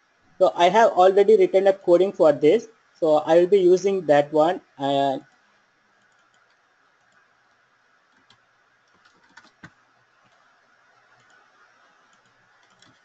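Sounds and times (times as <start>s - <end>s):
faint keyboard clicks: 5.3s - 13.0s.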